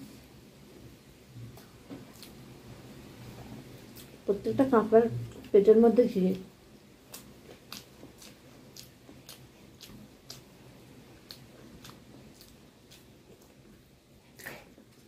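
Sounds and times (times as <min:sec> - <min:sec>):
person chewing food: 0:01.4 - 0:02.4, 0:03.8 - 0:04.2, 0:07.0 - 0:15.0.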